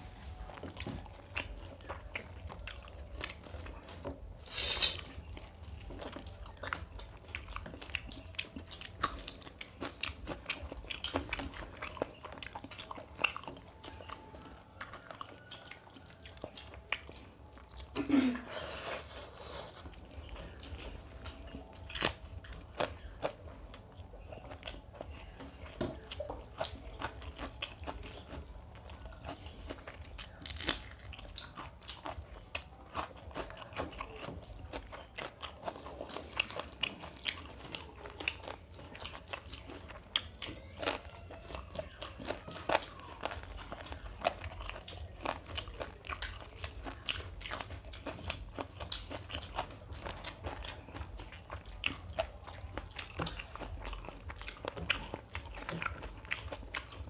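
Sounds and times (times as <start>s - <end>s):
people chewing food: 0.0s - 57.0s
biting raw onion: 25.9s - 57.0s.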